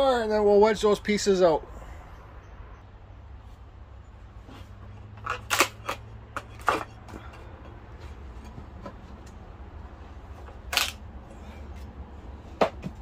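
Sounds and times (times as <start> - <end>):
wood cracking and snapping: 5.2 - 6.9, 10.6 - 11.0.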